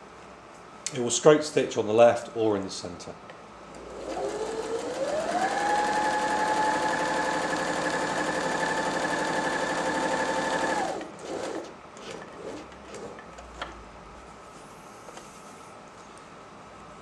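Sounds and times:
sewing machine stitching: 3.8 - 13.2.

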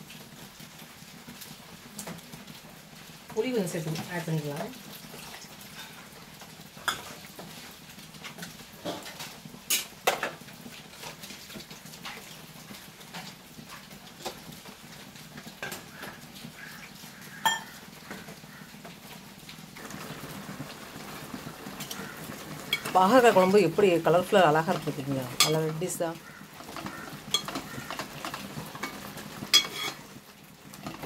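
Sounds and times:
steel utensils clinking on pot: 17.4 - 17.8, 22.7 - 25.9, 26.6 - 30.0.

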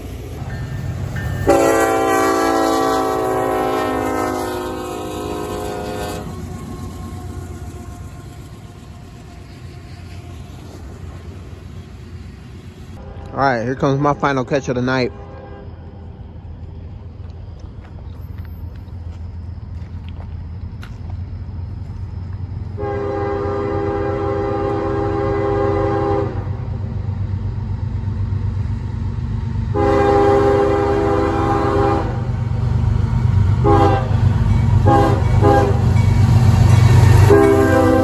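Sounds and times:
diesel engine rumble: 0.0 - 38.0
locomotive air horn blasts: 1.4 - 9.1, 13.0 - 16.1, 22.8 - 26.6, 29.7 - 32.3, 33.6 - 34.2, 34.8 - 35.9, 36.8 - 38.0.

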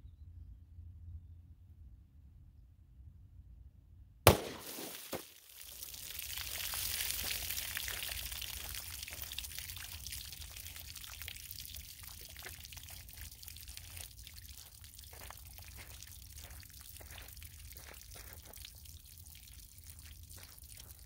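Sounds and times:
water dripping: 4.3 - 21.0
water pouring and splashing: 4.3 - 21.0.

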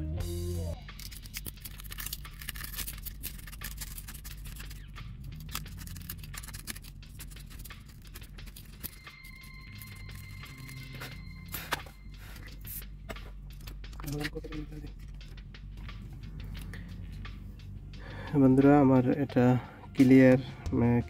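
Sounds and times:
guitar music: 0.0 - 0.9, 7.8 - 21.0
scraper scratching on glass: 2.0 - 11.2.

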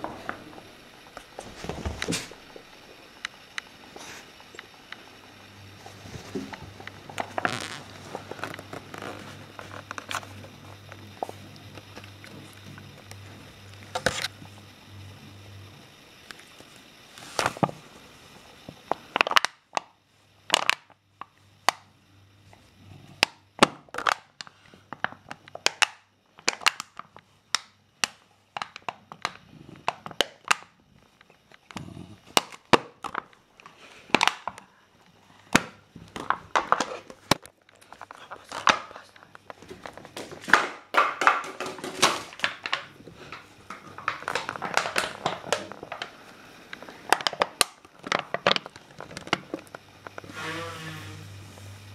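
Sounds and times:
dog chewing plastic bottle: 35.6 - 46.2.

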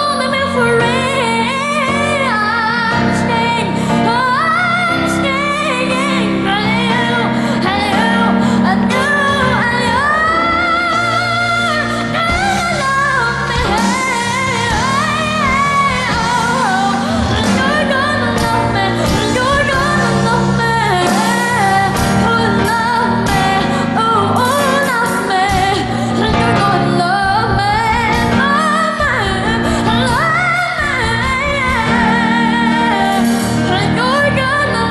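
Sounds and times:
boy singing with vibrato: 0.0 - 34.9
instrumental backing music: 0.0 - 34.9.

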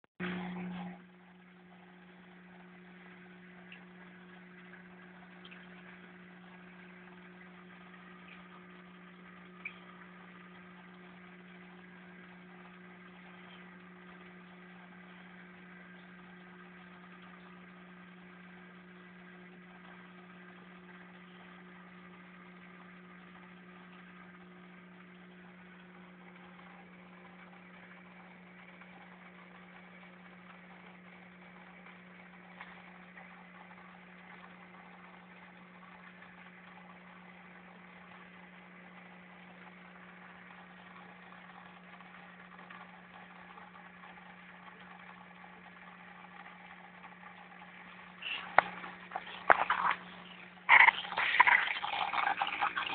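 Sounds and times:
low electrical hum: 0.2 - 52.9.

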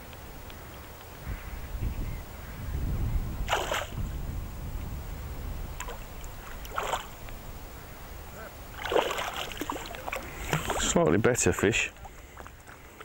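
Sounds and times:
fish splashing at water surface: 3.5 - 4.0, 5.8 - 7.2, 8.7 - 11.0.

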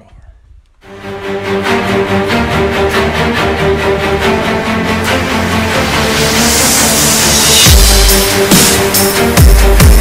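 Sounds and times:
background music sustained notes: 0.8 - 10.0.

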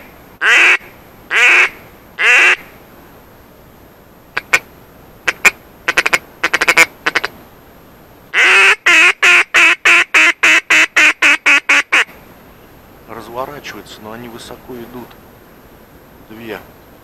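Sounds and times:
duck call quacks: 0.0 - 2.7, 4.4 - 4.7, 5.3 - 7.3, 8.3 - 12.1.

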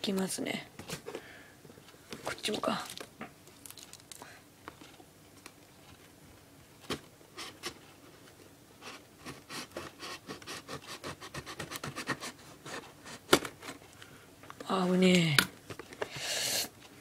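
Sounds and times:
fingernails scratching packing tape: 9.3 - 13.2.

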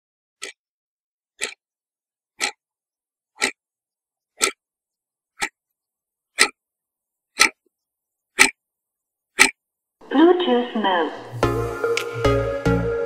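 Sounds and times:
clock ticking: 0.4 - 0.6, 1.4 - 1.7, 2.4 - 2.7, 3.3 - 3.6, 4.3 - 4.7, 5.3 - 5.6, 6.3 - 6.6, 7.3 - 7.6, 8.4 - 8.6, 9.4 - 9.6.

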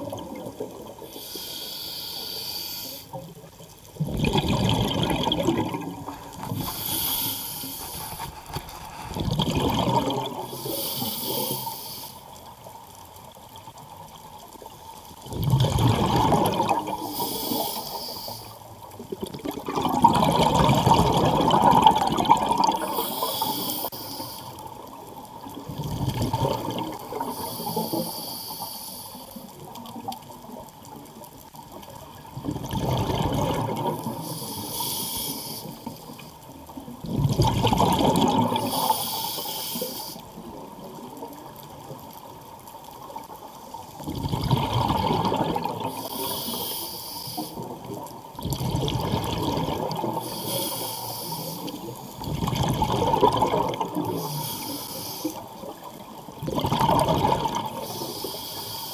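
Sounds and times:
hissing regulator inhale: 1.0 - 3.2, 6.1 - 9.2, 10.4 - 12.4, 17.0 - 18.8, 22.7 - 24.7, 27.1 - 29.6, 34.0 - 36.3, 38.6 - 40.3, 45.9 - 47.8, 50.1 - 52.2, 54.0 - 55.7, 57.8 - 58.9
bubbling exhale: 4.0 - 12.3, 15.2 - 24.9, 25.6 - 29.6, 32.4 - 36.2, 37.0 - 40.4, 44.0 - 58.9.

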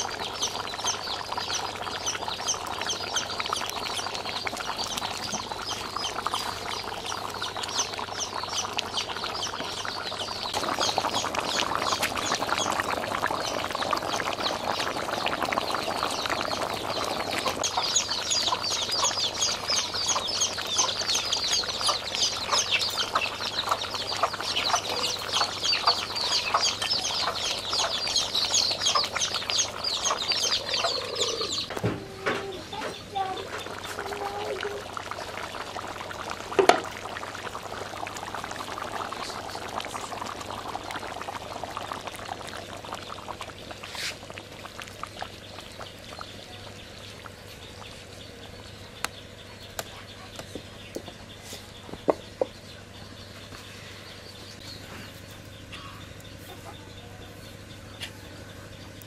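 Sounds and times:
birds chirping: 0.0 - 59.0
chickens clucking: 5.0 - 34.8, 54.8 - 58.4.

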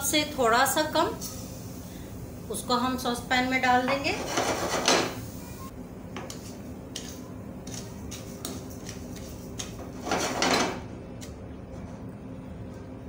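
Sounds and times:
wooden spoon scraping sugar in pan: 3.9 - 5.1, 6.2 - 10.5.

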